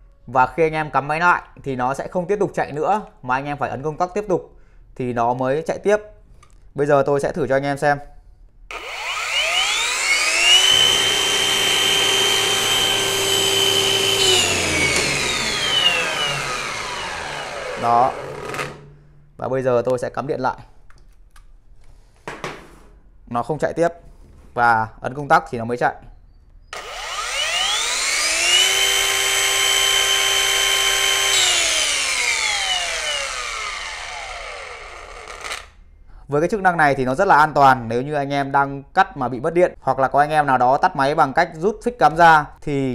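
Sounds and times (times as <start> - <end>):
wall chaser motor whining: 8.7 - 19.0, 26.7 - 35.8.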